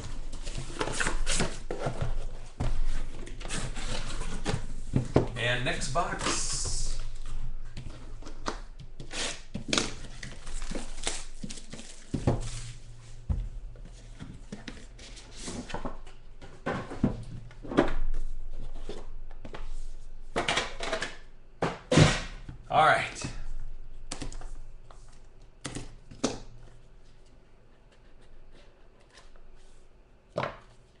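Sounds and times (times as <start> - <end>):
plastic wrap tearing and crinkling: 9.1 - 12.7.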